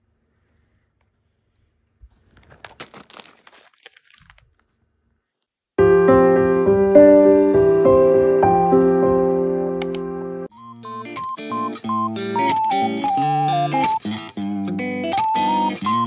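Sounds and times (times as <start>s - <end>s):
plastic pouch crinkling: 2.0s - 5.0s
music with piano-like chords: 5.8s - 10.5s.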